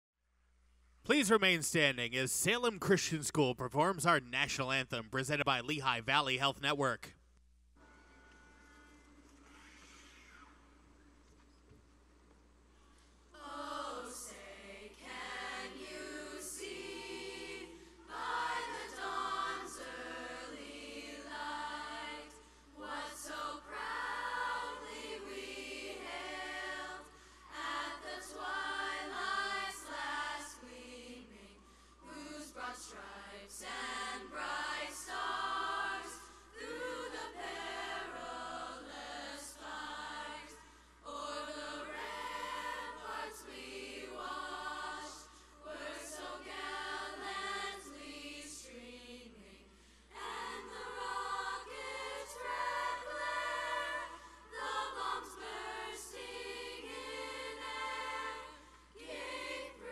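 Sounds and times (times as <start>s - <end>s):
youth choir singing anthem: 13.4s - 59.9s.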